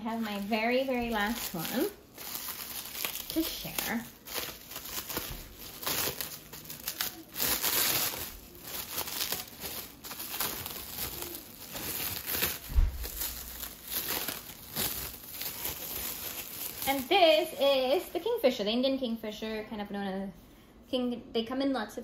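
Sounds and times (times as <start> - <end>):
plastic wrap crinkling and tearing: 0.0 - 18.4
dull low thump: 12.7 - 13.2.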